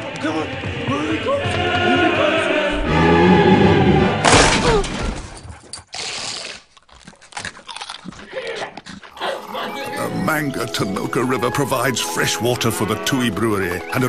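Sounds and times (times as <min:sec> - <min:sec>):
music with singing: 0:00.0 - 0:04.0
glass door shattering: 0:04.2 - 0:05.4.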